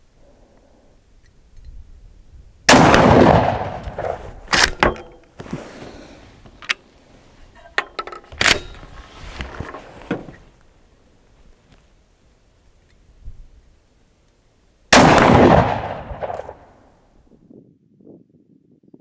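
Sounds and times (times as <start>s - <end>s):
gunshot echo: 2.7s - 5.0s, 14.9s - 16.8s.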